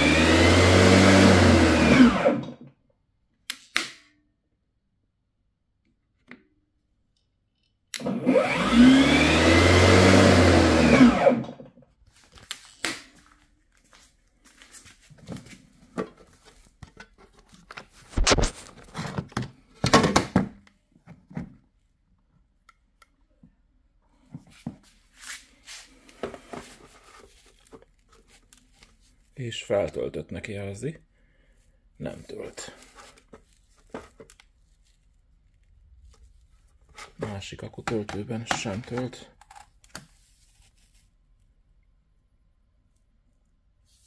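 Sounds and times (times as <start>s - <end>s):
electric lawnmower running: 0.0s - 2.6s, 8.0s - 11.6s.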